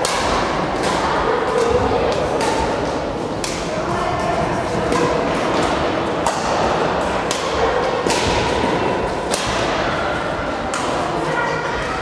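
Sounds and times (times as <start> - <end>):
rackets hitting shuttlecock: 0.0 - 4.0, 4.6 - 11.1
background hubbub: 0.0 - 12.0.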